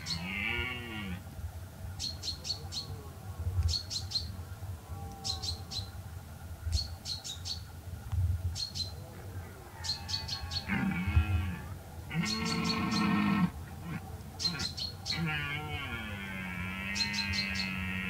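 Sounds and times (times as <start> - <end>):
small birds chirping: 0.0 - 1.0, 1.9 - 3.0, 3.6 - 4.4, 5.0 - 6.1, 6.7 - 7.7, 8.5 - 18.0
deer stag roaring: 0.0 - 1.2, 9.4 - 18.0.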